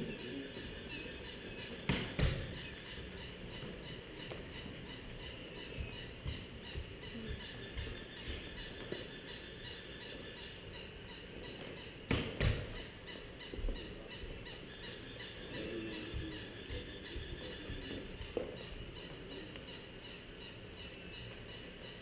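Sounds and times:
sharp knocks: 1.8 - 2.6, 12.1 - 12.8.

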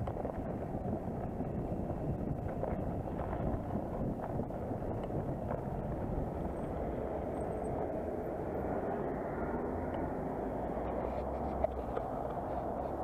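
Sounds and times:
bicycle rolling over dirt: 0.0 - 7.7
city traffic rumble: 0.0 - 13.0.

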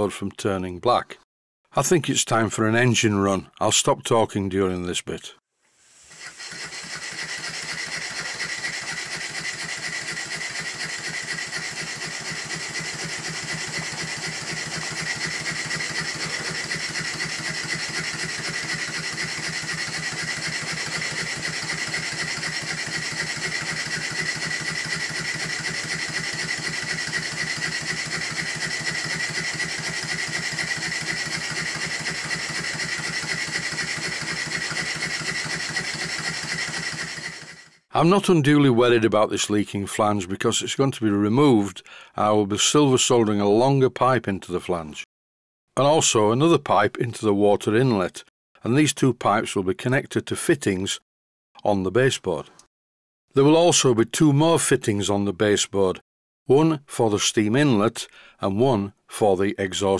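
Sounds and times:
model steam engine running: 6.1 - 37.8.

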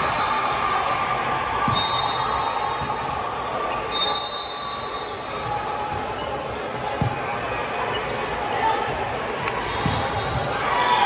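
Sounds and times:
crowd hubbub: 0.0 - 11.0
shoe squeals: 1.6 - 8.2, 9.9 - 11.0.

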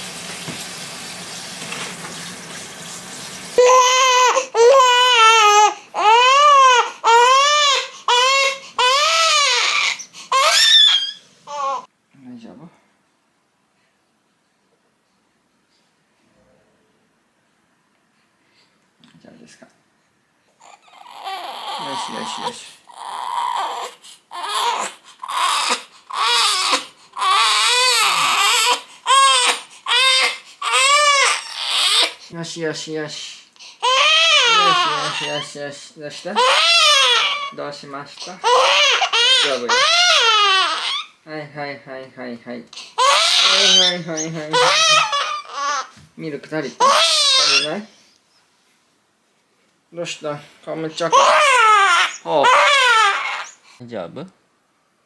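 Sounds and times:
baby gasping: 3.6 - 6.1, 42.7 - 46.0
baby wailing: 3.6 - 11.9, 20.6 - 32.2, 33.8 - 35.6, 36.4 - 41.2, 42.8 - 46.0, 46.7 - 47.9, 50.8 - 53.6.

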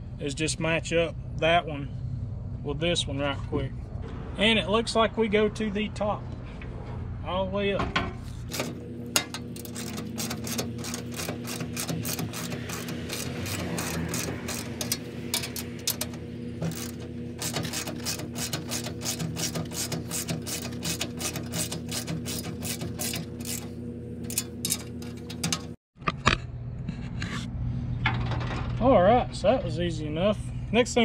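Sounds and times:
steady low hum: 0.0 - 31.0
ratchet wrench clicking: 8.5 - 25.7.

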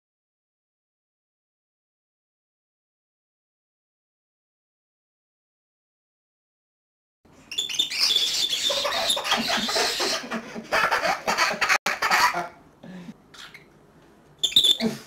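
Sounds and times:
cockatiel screeching: 7.5 - 10.3, 14.4 - 15.0.

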